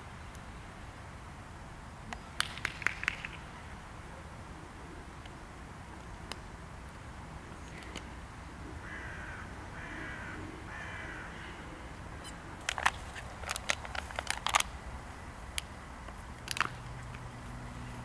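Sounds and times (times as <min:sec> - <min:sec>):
sharp clicks: 0:02.1 - 0:03.5, 0:12.6 - 0:14.8
crow cawing: 0:08.8 - 0:12.3.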